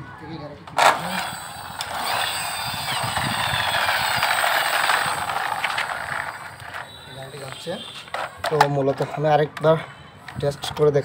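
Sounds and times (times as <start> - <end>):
toy truck rolling on concrete: 0.7 - 11.0.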